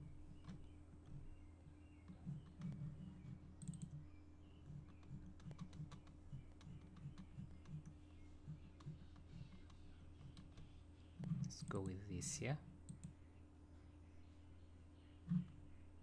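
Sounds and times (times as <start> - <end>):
low steady hum: 0.0 - 16.0
mouse and keyboard clicking: 2.0 - 4.0, 4.6 - 12.0.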